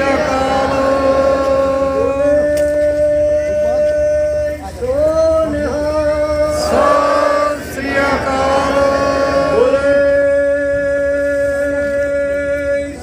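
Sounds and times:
men singing a hymn: 0.0 - 3.4, 6.0 - 13.0.

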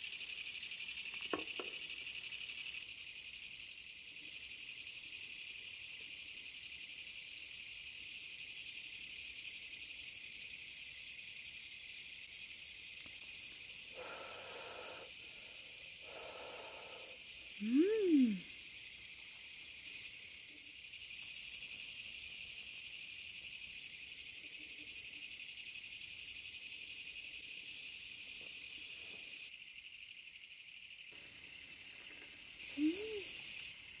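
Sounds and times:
crickets chirping: 0.0 - 34.0.

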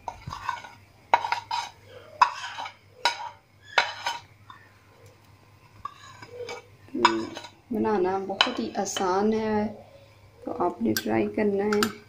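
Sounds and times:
spoon clinking on plate and bowl: 0.3 - 4.6.

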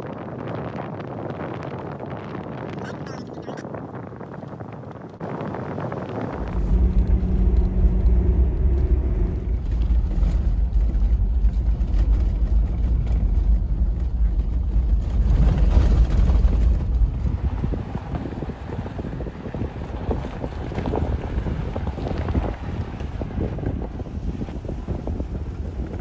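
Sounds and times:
engine and tyres rumbling: 0.0 - 26.0
droning tone: 5.3 - 14.9.

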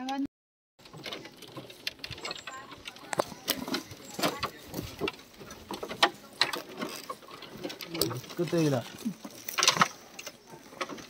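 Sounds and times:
crowd talking: 2.2 - 9.3.

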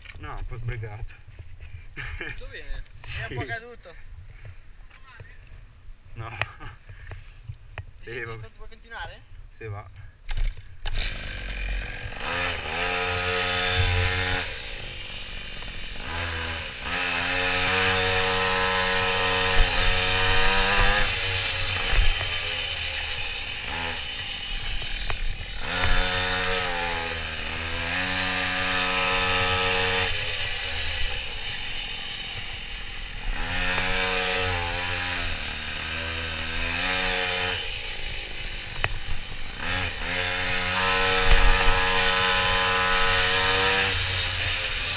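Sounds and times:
small two-stroke engine revving: 10.8 - 44.9.

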